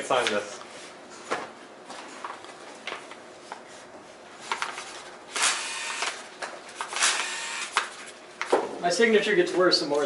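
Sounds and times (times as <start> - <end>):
paper handling: 2.0 - 5.2.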